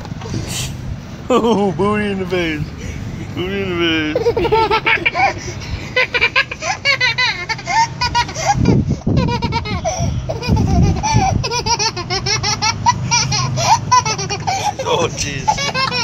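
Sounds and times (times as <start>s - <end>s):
toddler giggling: 3.3s - 16.0s.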